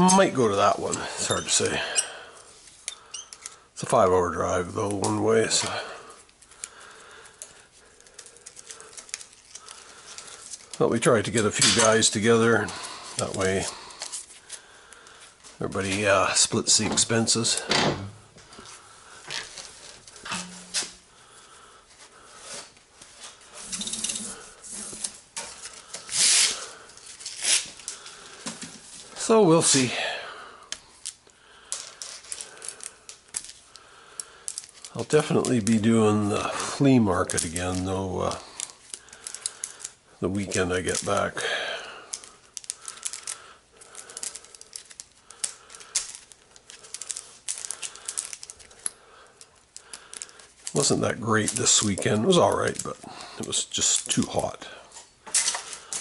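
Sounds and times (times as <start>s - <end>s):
metal cable armour scraping: 0.0s - 3.6s, 23.5s - 25.2s, 26.0s - 27.8s
metal cable armour clicking and rattling: 4.9s - 14.2s, 42.1s - 54.3s.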